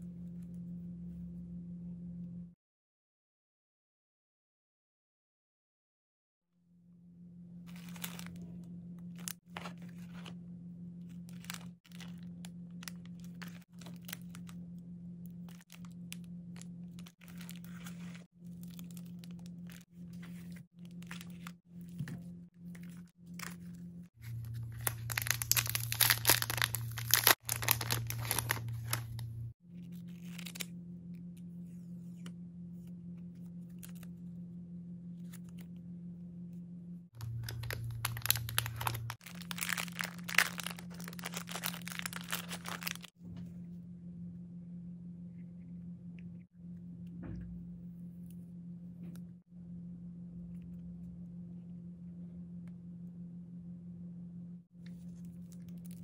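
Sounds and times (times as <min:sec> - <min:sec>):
low hum: 0:06.9 - 0:56.0
plastic packaging crinkling: 0:07.7 - 0:10.4, 0:11.1 - 0:14.6, 0:15.4 - 0:29.5, 0:30.1 - 0:30.7, 0:37.2 - 0:43.1.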